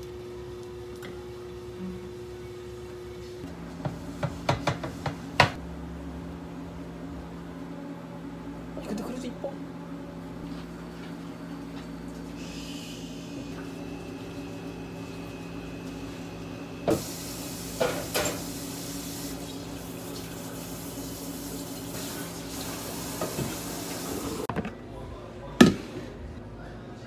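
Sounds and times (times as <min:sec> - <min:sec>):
hiss of running water: 0:16.9 - 0:24.5.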